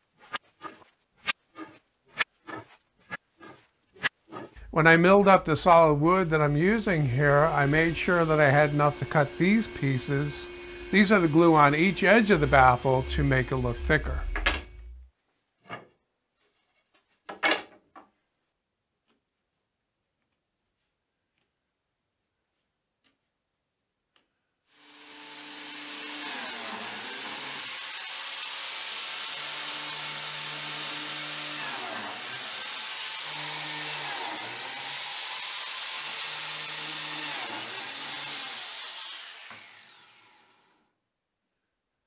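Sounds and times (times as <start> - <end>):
biscuit joiner motor running: 7.6 - 15.0.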